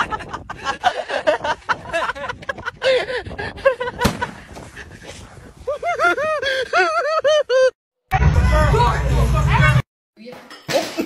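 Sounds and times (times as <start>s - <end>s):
men laughing: 0.0s - 5.0s, 5.6s - 7.8s.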